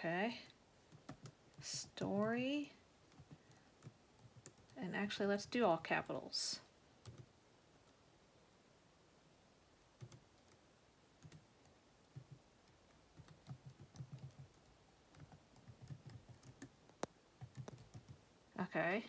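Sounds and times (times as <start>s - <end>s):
keyboard typing: 0.9s - 4.8s, 7.0s - 8.0s, 10.0s - 10.6s, 11.2s - 18.2s.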